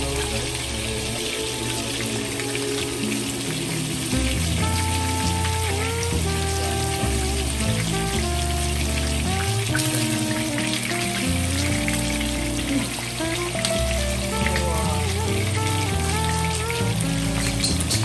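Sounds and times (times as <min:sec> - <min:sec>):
background music: 0:00.0 - 0:18.0
fish frying in sizzling oil: 0:00.0 - 0:18.0.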